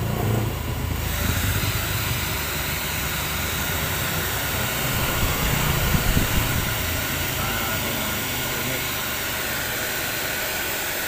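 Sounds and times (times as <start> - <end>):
hair dryer running: 0.0 - 11.0
air gusts on microphone: 4.7 - 6.9.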